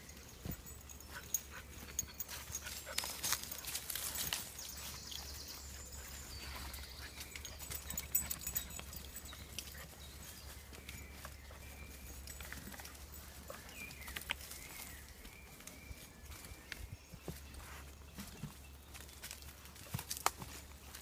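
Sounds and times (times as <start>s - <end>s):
footsteps on dirt path: 0.0s - 21.0s
twigs and leaves crackling: 2.5s - 5.4s, 12.2s - 21.0s.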